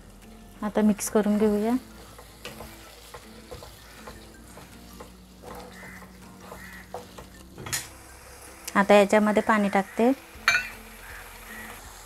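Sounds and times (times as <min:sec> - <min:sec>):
faint sizzle: 0:00.0 - 0:12.0
wooden spatula scraping a pan: 0:01.0 - 0:08.1.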